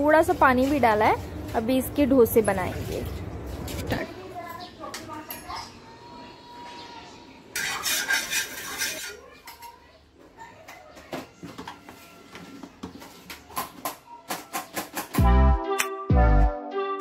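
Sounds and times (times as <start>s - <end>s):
steel utensils clinking: 7.5s - 9.8s
spoon scraping a griddle: 7.5s - 9.9s
music with heavy beat: 15.1s - 16.4s.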